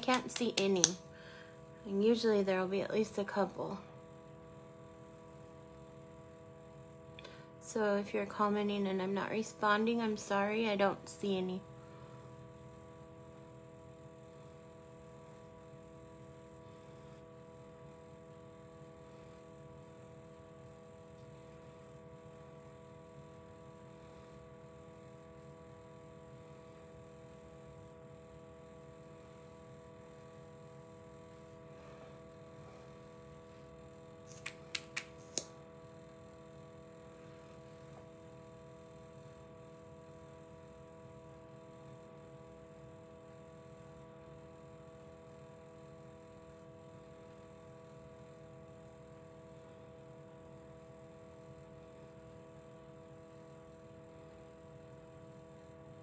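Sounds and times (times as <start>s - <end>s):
electrical hum: 0.0s - 56.0s
quick sharp clicks: 34.3s - 35.5s.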